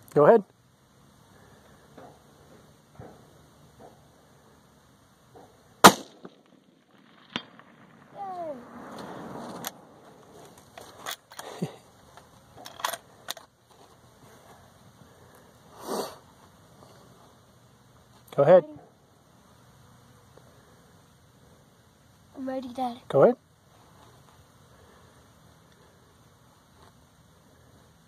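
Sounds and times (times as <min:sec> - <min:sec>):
bullet striking steel target: 0:05.8 - 0:08.1
rifle shot: 0:05.8 - 0:08.2.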